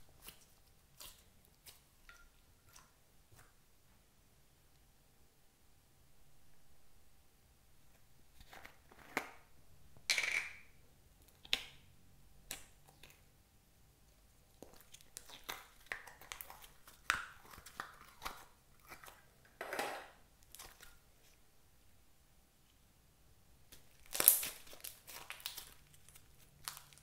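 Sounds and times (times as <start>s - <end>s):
slime squishes: 0.0s - 3.7s, 14.2s - 19.4s, 23.7s - 27.0s
slime crackles and sticky pops: 23.7s - 27.0s.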